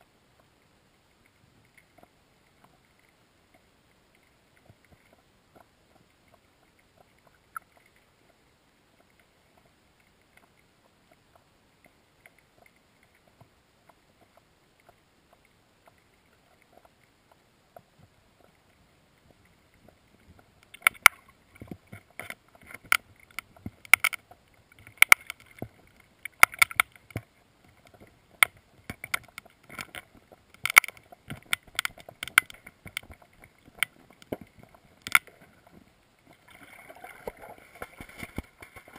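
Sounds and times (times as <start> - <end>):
underwater sharp knocks and clicks: 9.0 - 38.9.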